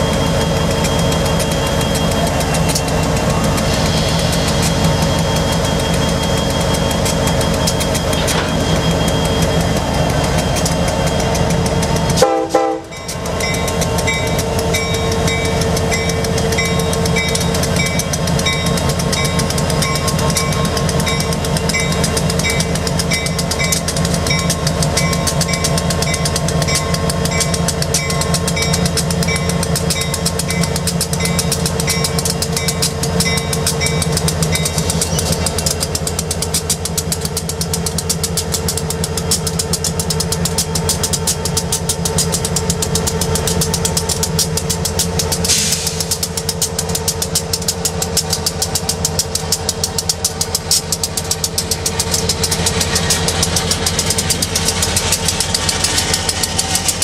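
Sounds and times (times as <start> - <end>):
locomotive bell dinging: 0.0 - 57.0
locomotive diesel engines running: 0.0 - 57.0
short air hiss: 45.5 - 46.1.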